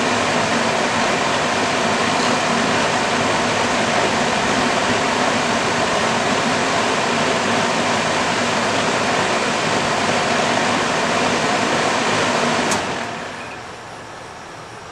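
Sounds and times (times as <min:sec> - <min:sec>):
click: 0:12.7 - 0:12.9.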